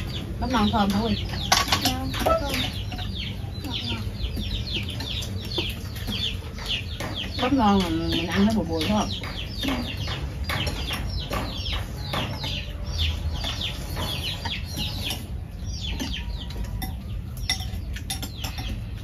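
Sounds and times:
chickens clucking: 0:00.0 - 0:19.0
chopsticks clinking on bowls: 0:16.0 - 0:19.0.

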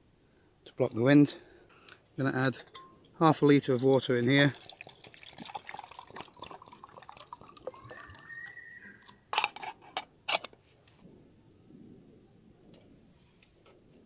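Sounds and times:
water pouring into metal mug: 0:03.8 - 0:09.2.

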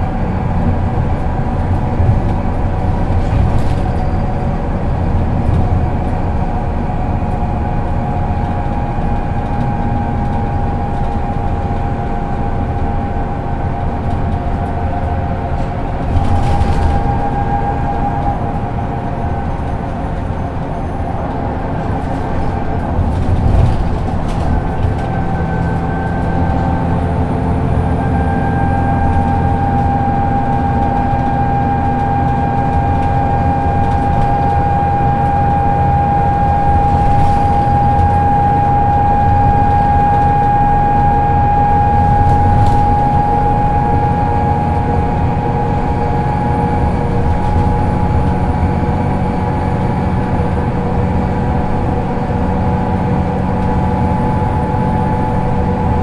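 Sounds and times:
bus engine rumbling and whining: 0:00.0 - 0:56.0.

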